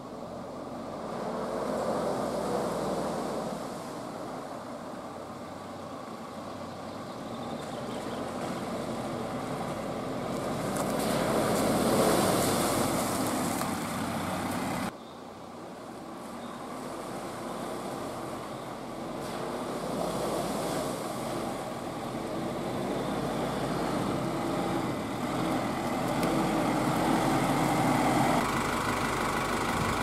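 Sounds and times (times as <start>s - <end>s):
water splashing from wheels: 0.5s - 6.5s, 7.2s - 14.9s, 15.9s - 30.0s
van engine running: 4.8s - 14.9s, 16.7s - 30.0s.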